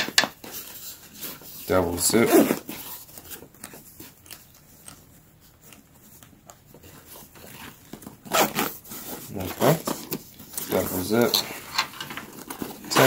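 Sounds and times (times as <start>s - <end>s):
fabric rustling: 0.0s - 13.0s
zipper being pulled: 2.1s - 3.0s, 7.4s - 9.9s.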